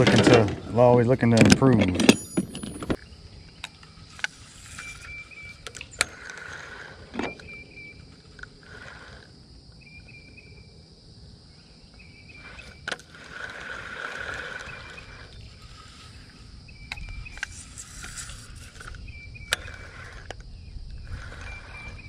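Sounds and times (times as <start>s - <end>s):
faint high insect-like hum: 0.0s - 22.0s
sharp clicks and knocks: 1.2s - 3.0s
short chirping call: 4.6s - 6.2s, 7.3s - 8.1s.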